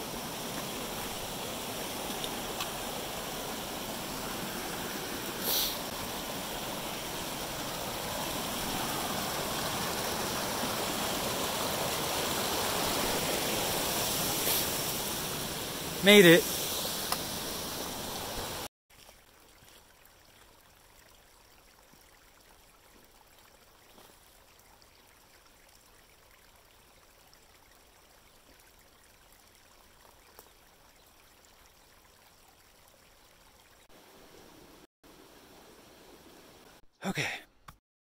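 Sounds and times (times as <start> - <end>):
water trickling over mud: 0.3 - 12.8, 18.9 - 33.9.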